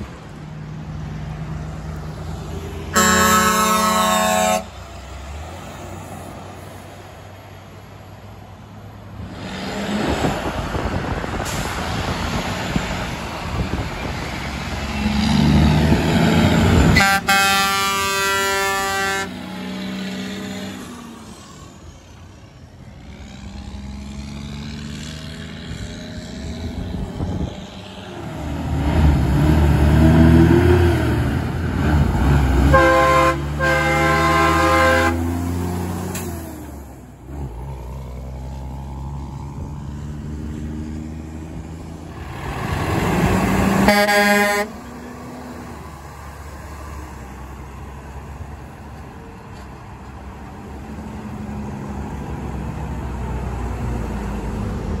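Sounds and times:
diesel trucks passing: 0.0s - 55.0s
truck air horns: 2.9s - 4.9s, 16.6s - 19.7s, 32.6s - 35.5s, 43.8s - 45.0s.

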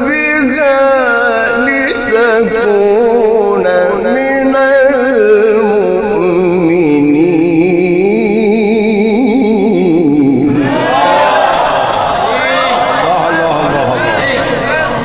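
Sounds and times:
man reciting melodically: 0.0s - 10.8s, 12.9s - 15.0s.

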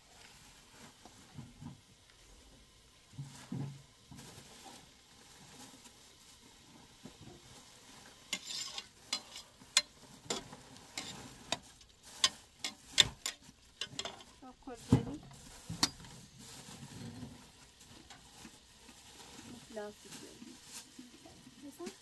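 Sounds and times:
utensil clinking in metal pot: 8.3s - 14.4s.

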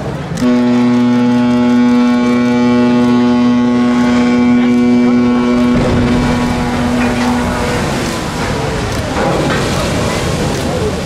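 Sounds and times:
low rush of water: 0.0s - 11.0s
ship's horn blast: 0.4s - 10.4s.

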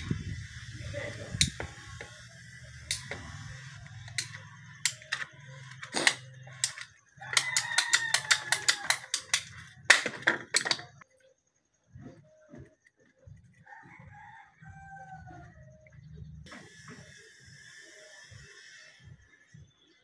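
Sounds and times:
pipe cutter blade snapping through: 1.4s - 1.7s, 2.9s - 3.2s, 4.1s - 10.9s
ratcheting pipe cutter clicking: 1.4s - 2.1s, 2.9s - 3.2s, 3.8s - 10.8s.

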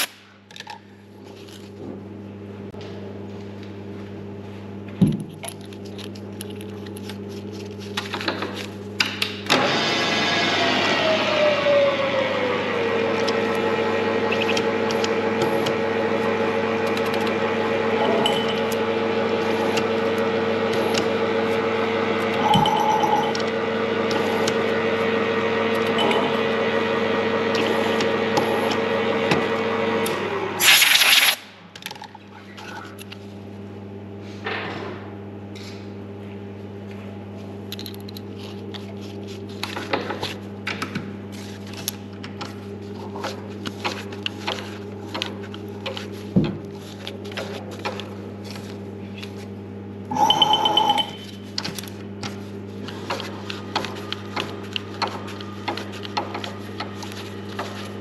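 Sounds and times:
milling machine running: 9.5s - 30.8s, 49.9s - 51.4s
steady hum: 10.6s - 58.0s.

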